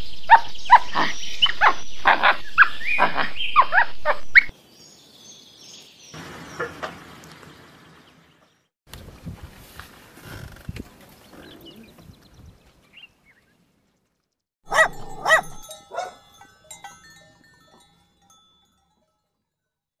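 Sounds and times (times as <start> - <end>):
dog barking: 0.3 - 4.5, 14.7 - 16.4.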